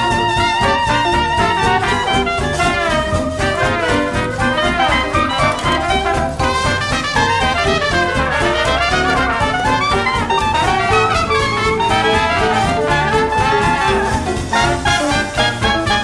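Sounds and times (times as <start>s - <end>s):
brass-led music over steady beat: 0.0s - 16.0s.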